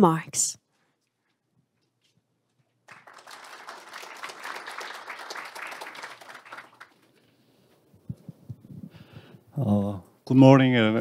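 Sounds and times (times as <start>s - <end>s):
audience applauding: 2.8s - 7.2s.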